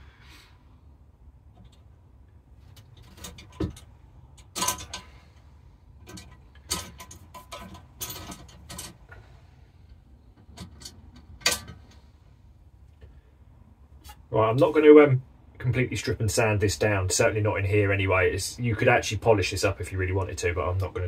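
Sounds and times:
metal targets clicking and clattering: 2.8s - 5.2s, 6.0s - 9.1s.

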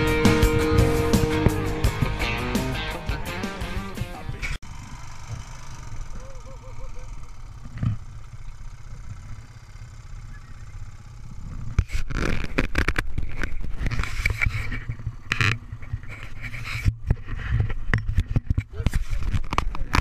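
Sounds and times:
atv engine idling: 0.0s - 12.2s, 14.6s - 17.8s.

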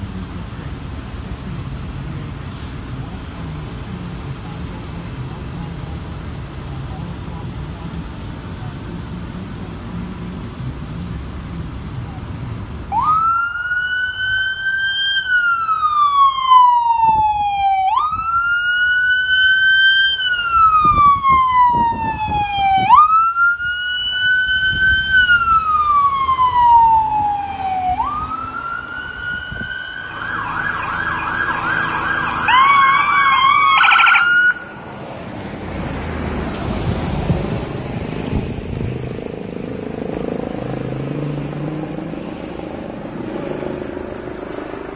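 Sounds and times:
vehicle and road noise: 0.0s - 44.9s
ambulance siren wailing and yelping: 12.9s - 34.8s.

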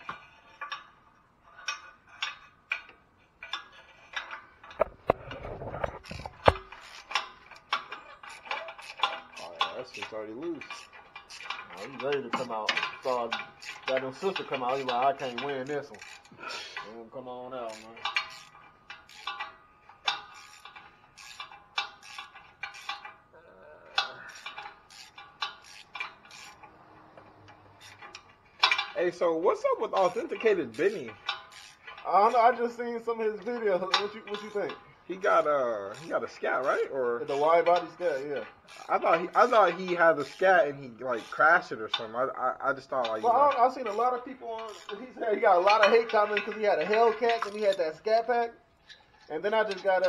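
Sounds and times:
sharp metal knocks: 1.8s - 16.3s, 41.2s - 47.9s
socket ratchet clicking: 6.0s - 16.9s, 17.7s - 23.2s, 24.0s - 29.0s, 30.0s - 32.1s, 33.3s - 42.0s, 42.8s - 47.8s.

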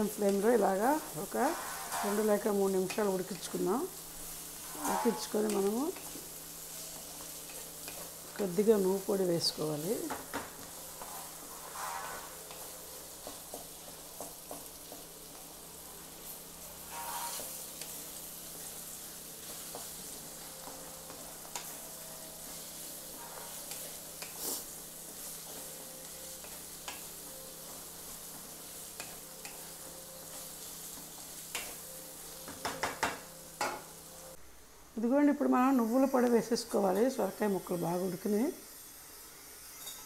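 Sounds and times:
vegetables sizzling in oil: 0.0s - 40.0s
wooden spatula scraping pan: 1.0s - 2.5s, 4.6s - 6.2s, 10.9s - 13.4s, 16.8s - 17.9s, 22.4s - 25.7s.

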